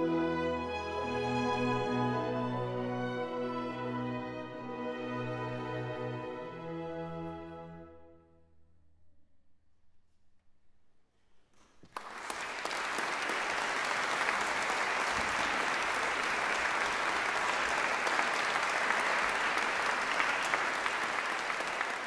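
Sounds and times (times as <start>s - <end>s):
audience applauding: 11.8s - 22.0s.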